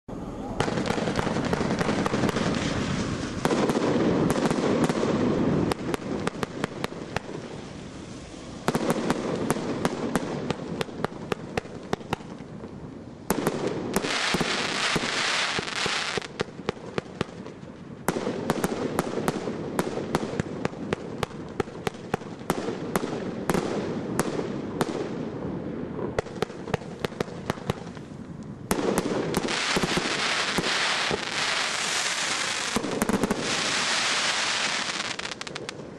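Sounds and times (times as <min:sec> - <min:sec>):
firework hiss: 0:00.1 - 0:12.5, 0:13.3 - 0:16.7, 0:26.5 - 0:35.9
firework shots bursting: 0:00.6 - 0:12.5, 0:13.3 - 0:25.3, 0:26.1 - 0:35.9.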